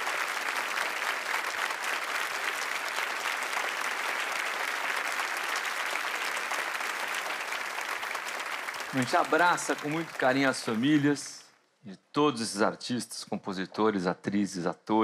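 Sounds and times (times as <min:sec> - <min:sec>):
audience applause: 0:00.0 - 0:11.4.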